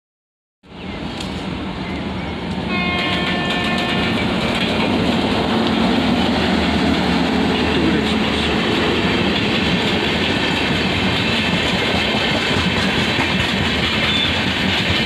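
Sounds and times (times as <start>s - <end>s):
train wheels rumbling on rails: 0.8s - 15.0s
locomotive horn blast: 2.7s - 4.3s.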